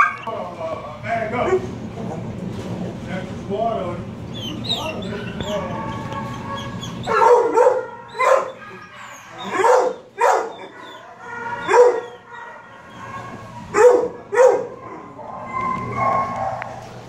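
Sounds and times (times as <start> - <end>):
dog barking: 5.3 - 16.9.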